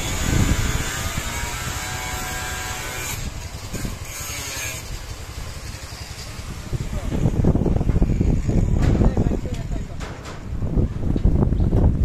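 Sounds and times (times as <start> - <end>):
angle grinder cutting metal: 0.0 - 10.0.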